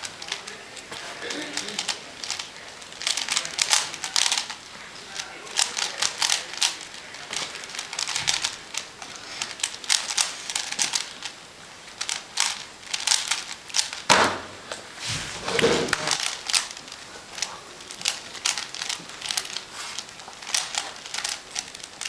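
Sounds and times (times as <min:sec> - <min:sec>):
puzzle cube plastic clicking: 0:00.0 - 0:14.1, 0:15.8 - 0:22.0
heavy thump: 0:14.1 - 0:16.1.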